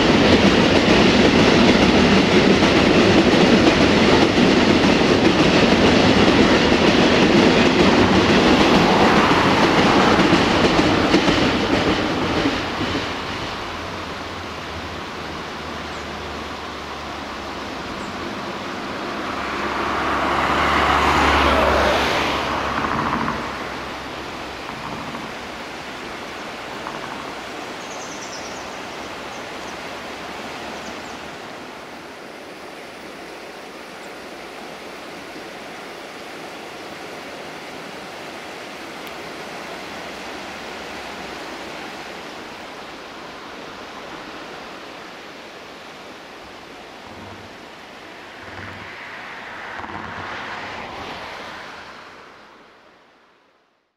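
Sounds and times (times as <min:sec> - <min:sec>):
steady rushing noise: 0:00.0 - 0:53.9
vehicle engine hum passing: 0:15.4 - 0:27.6, 0:46.4 - 0:53.5.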